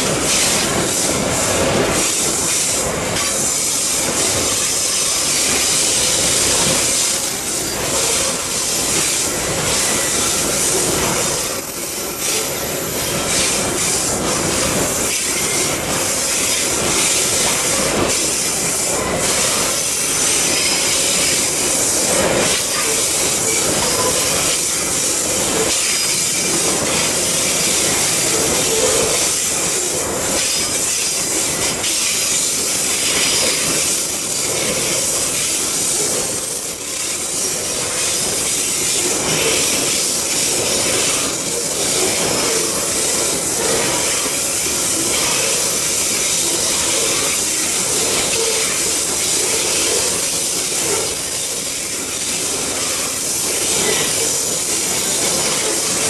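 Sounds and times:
train wheels on rail: 0.0s - 56.0s.

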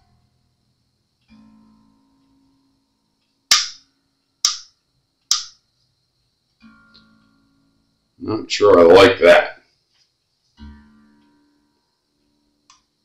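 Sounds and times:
guitar string plucked: 1.2s - 2.5s, 6.6s - 7.6s, 10.6s - 11.7s
sharp loud clicks: 3.5s - 5.6s.

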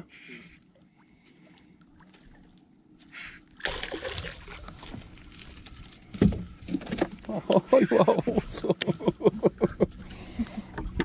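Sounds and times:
fish thrashing and splashing: 3.6s - 7.3s.

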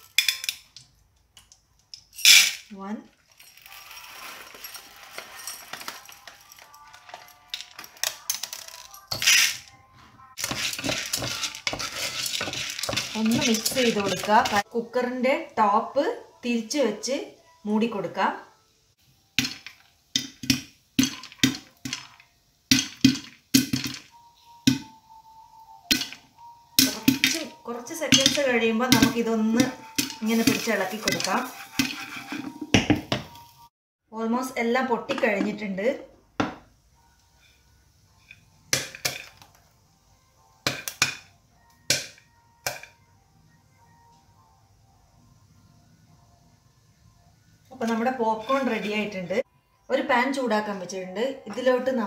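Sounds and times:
popcorn popping in a pot: 10.4s - 14.6s, 19.3s - 24.9s, 25.9s - 26.2s, 26.8s - 33.3s, 38.7s - 39.6s, 40.6s - 41.3s, 41.9s - 43.0s.

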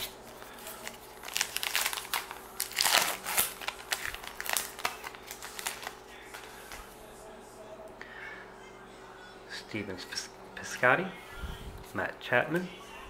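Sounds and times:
foil wrapper crinkling: 0.0s - 6.8s.

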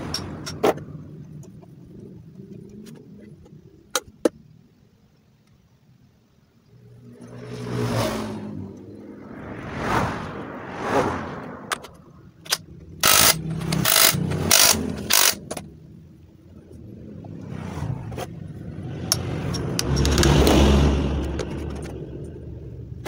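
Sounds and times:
road traffic: 0.0s - 23.0s
impact wrench bursts: 12.4s - 15.6s.

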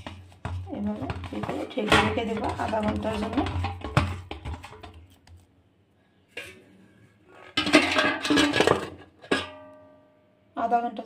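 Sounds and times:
metal plate scraping a bowl: 0.0s - 5.1s, 6.3s - 9.6s.

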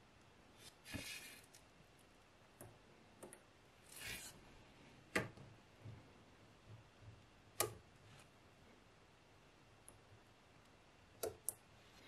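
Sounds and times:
soft rustle: 0.6s - 1.7s.

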